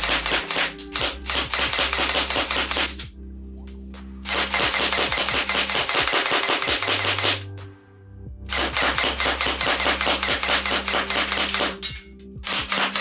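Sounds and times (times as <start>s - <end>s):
airsoft gun bursts: 12.5s - 13.0s.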